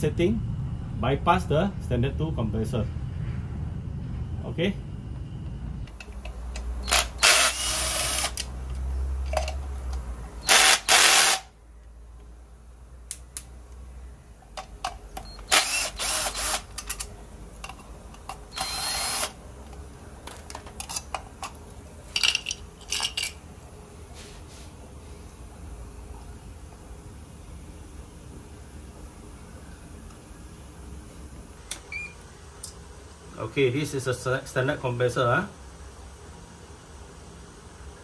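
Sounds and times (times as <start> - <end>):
cordless drill running: 6.8 - 8.5, 10.4 - 11.5, 15.4 - 16.8, 18.5 - 19.4.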